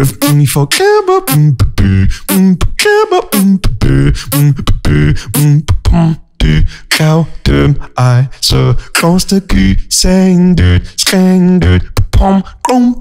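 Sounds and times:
vocal beatboxing: 0.0s - 13.0s.

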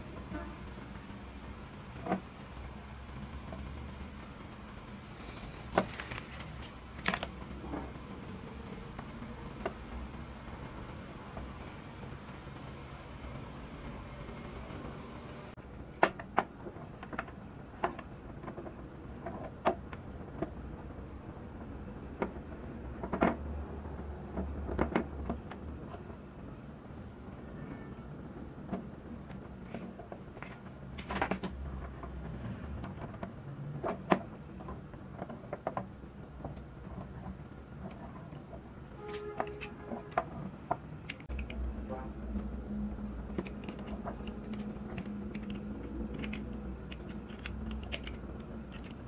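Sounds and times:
steady low hum: 0.0s - 49.0s
plastic parts clicking: 39.4s - 49.0s.

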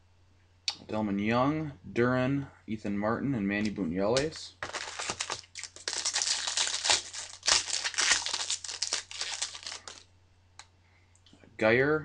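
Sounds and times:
foil wrapper crinkling: 4.6s - 10.1s.

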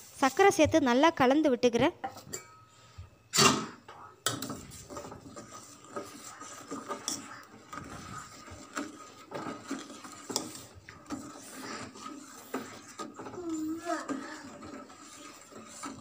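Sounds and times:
metal ladle scraping a pot: 4.3s - 16.0s.

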